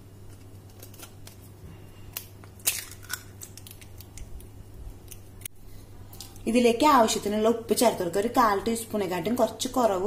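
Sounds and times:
egg tapping and cracking on metal: 0:02.1 - 0:04.4.

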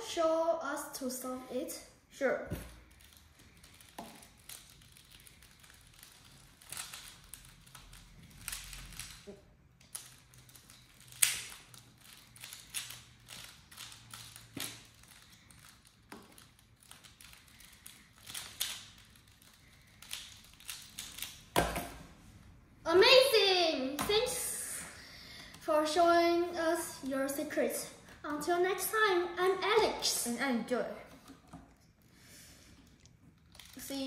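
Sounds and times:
plastic puzzle clicking and clacking: 0:03.0 - 0:22.0.

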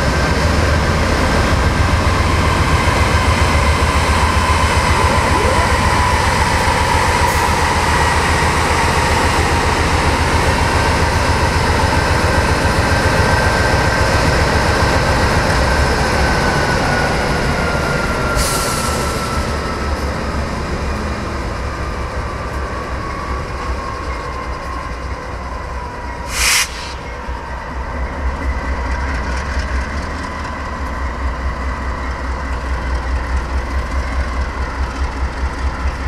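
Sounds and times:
freight train wheels rumbling: 0:00.0 - 0:36.0
brief hiss: 0:26.3 - 0:27.3.

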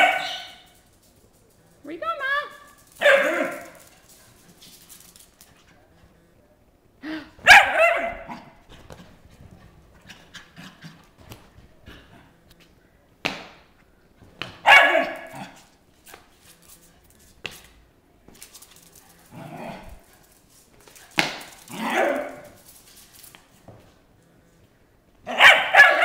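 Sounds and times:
dog barking and yipping: 0:00.0 - 0:00.8, 0:02.9 - 0:04.0, 0:07.4 - 0:08.6, 0:14.6 - 0:15.6, 0:21.7 - 0:22.6, 0:25.3 - 0:26.0.

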